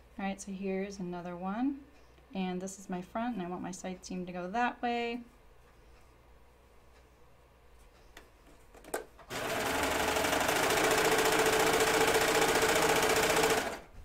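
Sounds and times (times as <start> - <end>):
serger sewing machine running: 9.3 - 13.9.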